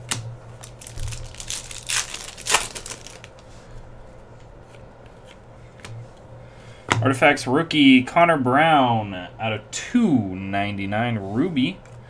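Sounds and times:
cards rustling and scraping: 0.6 - 3.6.

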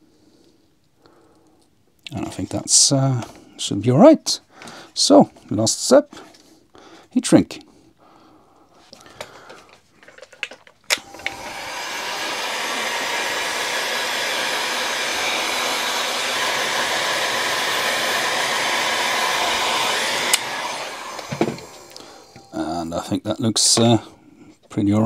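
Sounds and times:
heat gun switch click: 10.9 - 11.5, 20.3 - 22.5
heat gun blowing: 10.9 - 22.6.

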